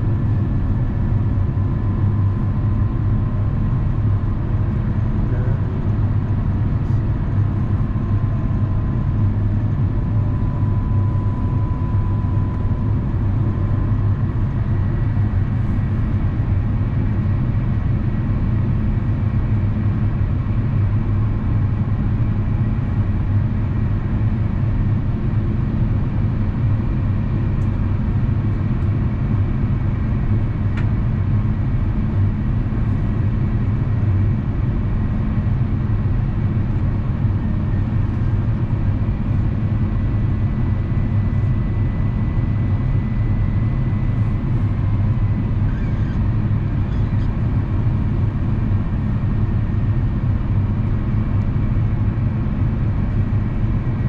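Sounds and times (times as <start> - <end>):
airplane cabin rumble: 0.0 - 54.0
faint high whine: 9.8 - 15.2.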